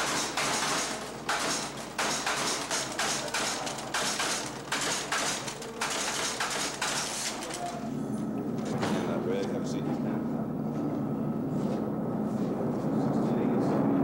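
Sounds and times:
office machine clattering: 0:00.0 - 0:07.9, 0:08.5 - 0:09.6.

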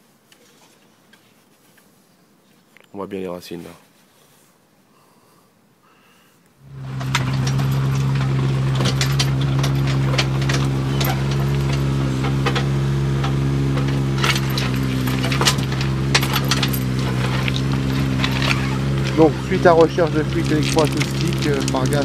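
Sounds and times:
excavator engine running: 0:06.6 - 0:22.0
bucket clinks digging stony soil: 0:06.7 - 0:22.0.

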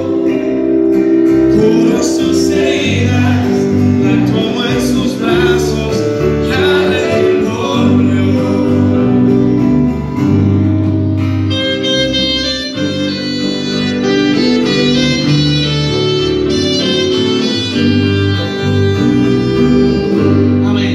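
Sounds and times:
man singing: 0:00.0 - 0:09.8, 0:16.6 - 0:20.9
sustained instrumental melody: 0:00.0 - 0:20.9
worship band playing: 0:00.0 - 0:20.9.

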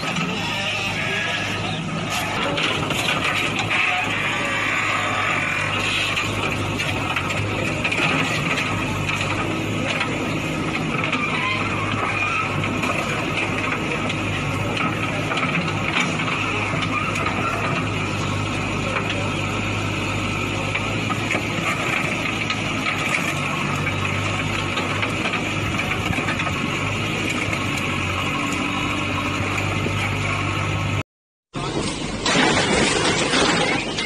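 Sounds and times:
diesel engine running under load: 0:00.0 - 0:34.0
digger bucket smashing car body: 0:31.6 - 0:34.0
metal clanks: 0:31.8 - 0:34.0.

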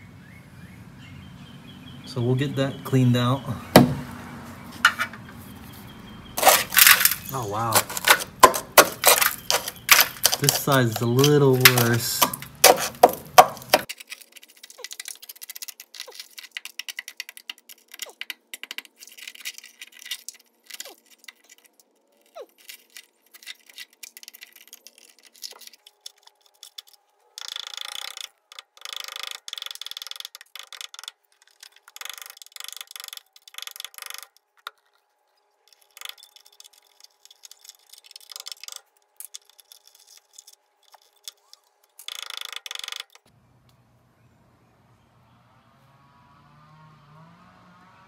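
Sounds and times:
scrubbing bursts: 0:04.0 - 0:18.3
hand scraping rusty sheet metal: 0:04.7 - 0:05.5, 0:06.4 - 0:18.0.

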